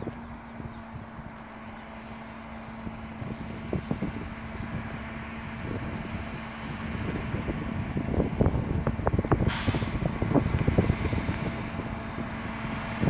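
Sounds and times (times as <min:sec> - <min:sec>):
diesel truck engine running: 0:00.0 - 0:13.0
short hiss: 0:09.5 - 0:10.0.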